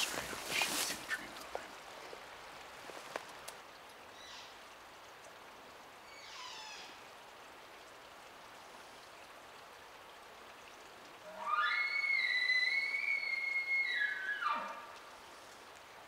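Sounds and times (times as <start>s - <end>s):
quiet forest hiss: 0.0s - 16.0s
soft ticks: 3.1s - 4.0s
distant elk bugle whistling call: 11.2s - 15.0s.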